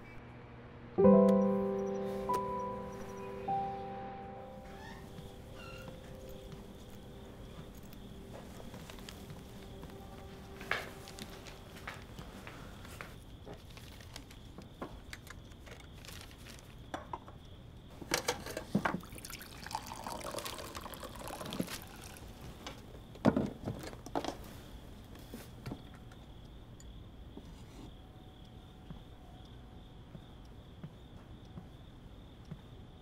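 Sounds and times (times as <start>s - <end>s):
knocks and clatters of handling: 18.0s - 19.1s, 23.2s - 24.5s
liquid pouring into cup: 18.9s - 22.5s.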